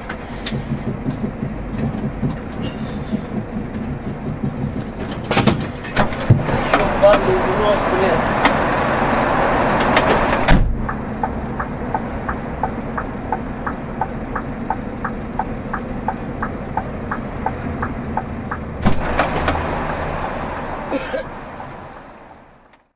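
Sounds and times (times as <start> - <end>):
sharp knocks: 0.0 - 7.3
rush of noise: 0.0 - 16.7
truck engine idling: 0.0 - 22.9
indicator relay ticking: 10.7 - 18.9.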